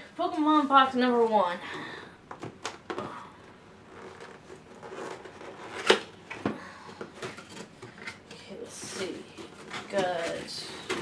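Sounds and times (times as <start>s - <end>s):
cardboard flaps rustling and scraping: 3.9s - 6.4s, 7.1s - 11.0s.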